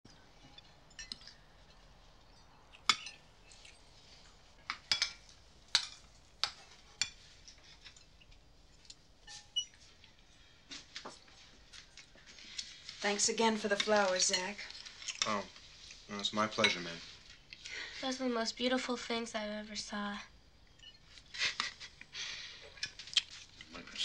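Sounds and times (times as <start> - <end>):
cutlery clinking on plates: 0.4 - 3.8, 4.6 - 11.2, 13.8 - 15.4, 16.5 - 17.0.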